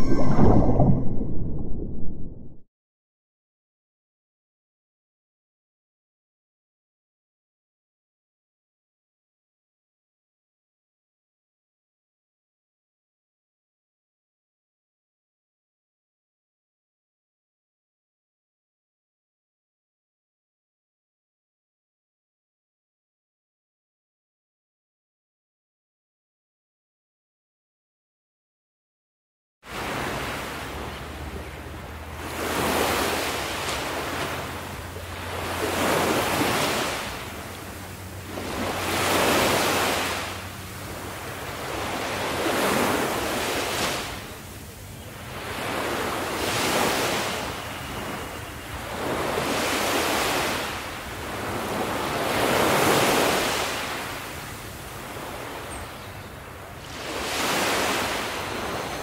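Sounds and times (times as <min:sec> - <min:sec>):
ocean waves washing ashore: 0:00.0 - 0:02.6, 0:29.7 - 0:59.0.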